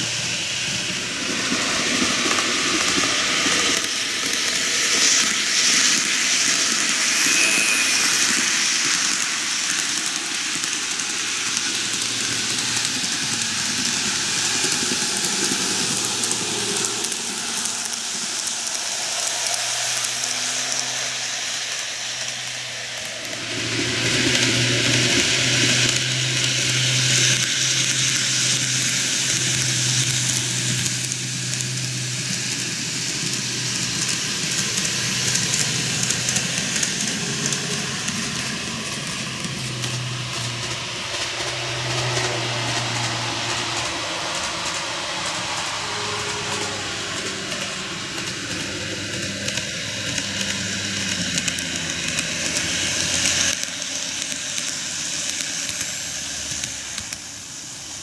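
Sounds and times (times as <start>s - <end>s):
model train wheels rolling: 0.0s - 58.0s
low motor hum: 11.9s - 53.5s.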